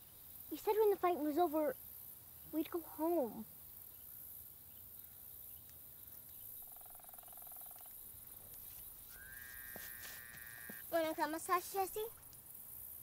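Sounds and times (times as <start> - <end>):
small animal pulsed trill: 6.6 - 8.2.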